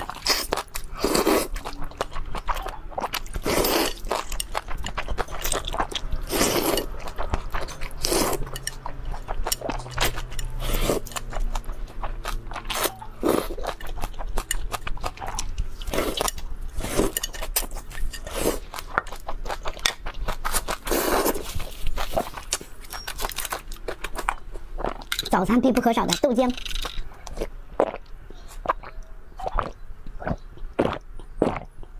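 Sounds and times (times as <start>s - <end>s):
person slurping noodles: 20.8s - 21.5s.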